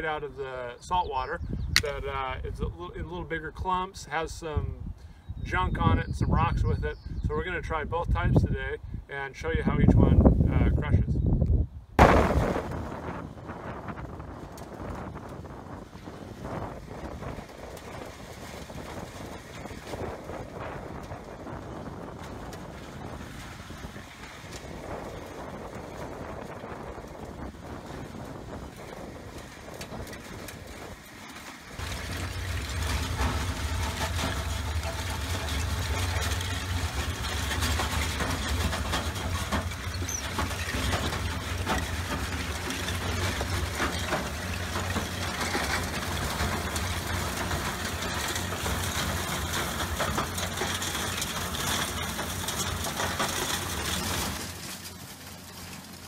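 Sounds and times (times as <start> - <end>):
shells crackling through mill: 14.2 - 56.0.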